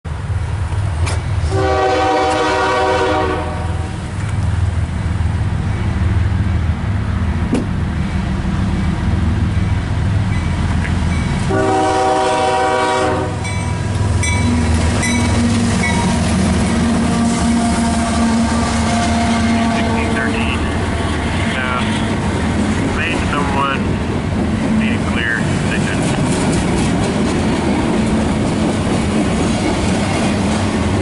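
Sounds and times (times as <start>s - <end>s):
locomotive engines rumbling: 0.1s - 31.0s
train air horn blasts: 1.4s - 4.0s, 11.5s - 13.5s, 16.8s - 20.6s.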